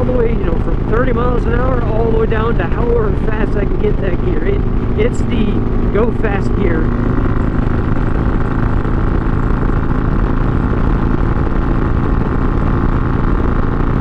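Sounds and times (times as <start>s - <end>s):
motorcycle engine cruising: 0.0s - 14.0s.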